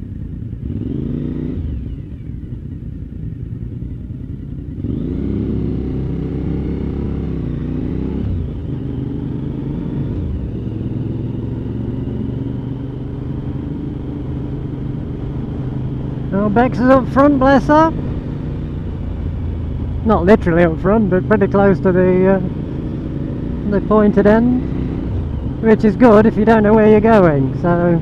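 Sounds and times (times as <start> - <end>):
motorcycle engine accelerating: 0.0 - 28.0.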